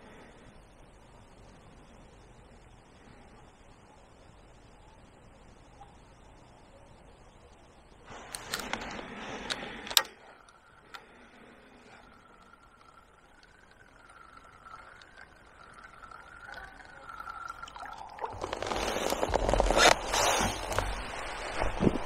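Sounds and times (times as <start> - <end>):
fishing tackle clicks: 8.3 - 11.1
water splashing and trickling: 10.0 - 22.0
faint wavering tone: 10.1 - 18.4.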